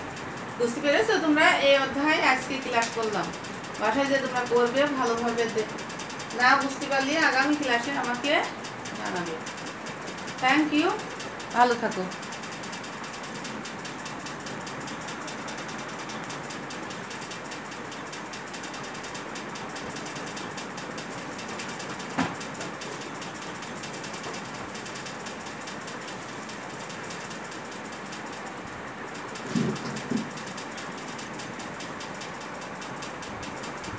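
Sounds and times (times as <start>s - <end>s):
fast even ticking: 0.0s - 33.9s
mechanical whirr: 0.0s - 33.9s
sharp click: 2.4s - 33.9s.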